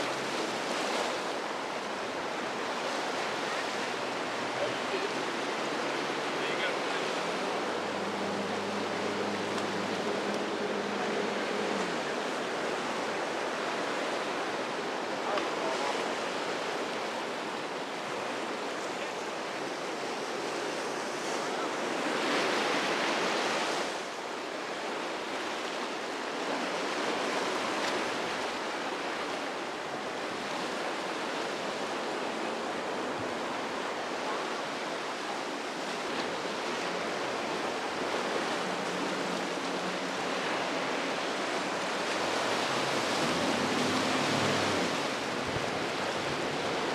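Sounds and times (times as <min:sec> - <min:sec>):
wave breaking: 0:00.0 - 0:17.5, 0:35.4 - 0:46.9
ocean surf washing: 0:00.0 - 0:46.9.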